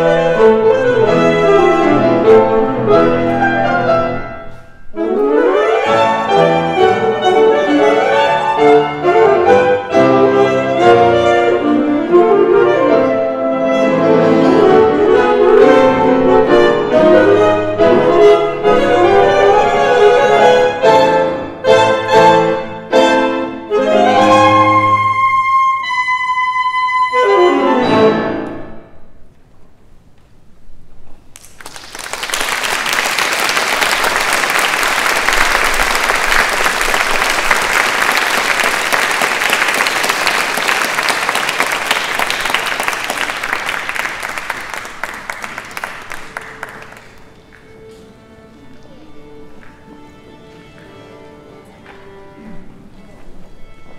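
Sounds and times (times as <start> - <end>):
saxophones: 0.0 - 28.4
piano: 0.0 - 53.9
audience applause: 31.4 - 47.4.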